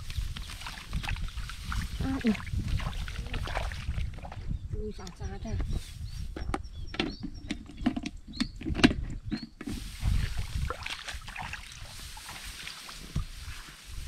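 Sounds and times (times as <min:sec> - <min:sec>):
rice plants rustling: 0:00.0 - 0:03.8, 0:09.6 - 0:14.0
footsteps through paddy: 0:00.0 - 0:04.4, 0:09.4 - 0:14.0.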